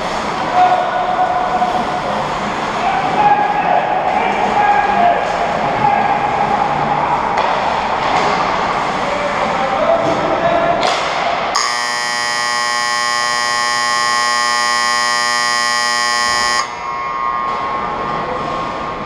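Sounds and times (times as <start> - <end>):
game clock buzzer: 11.6 - 16.8.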